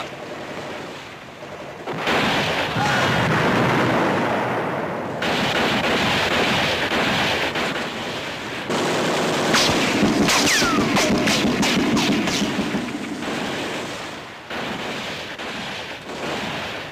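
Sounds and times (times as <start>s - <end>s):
gunfire and explosions: 0.0s - 16.9s
sharp cracks: 1.9s - 16.9s
falling whines: 10.2s - 11.3s.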